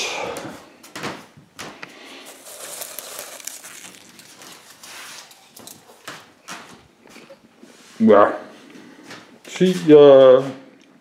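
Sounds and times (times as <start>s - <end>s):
rustling handling noise: 1.9s - 10.0s
small clicks and crackles: 2.4s - 6.2s.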